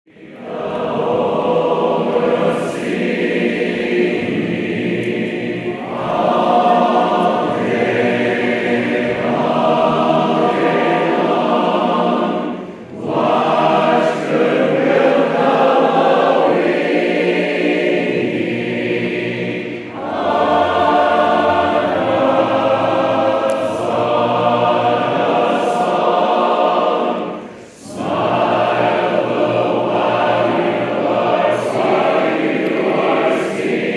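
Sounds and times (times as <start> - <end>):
crowd and chorus singing in harmony: 0.1 - 33.9.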